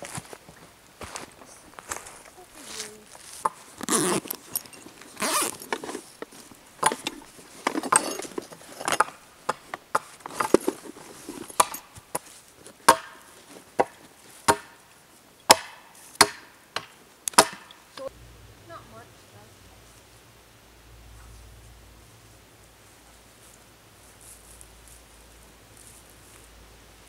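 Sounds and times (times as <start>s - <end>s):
gear rustling in canvas bag: 1.4s - 9.3s, 10.1s - 12.7s
sharp knocks: 13.8s - 14.8s, 15.5s - 17.8s.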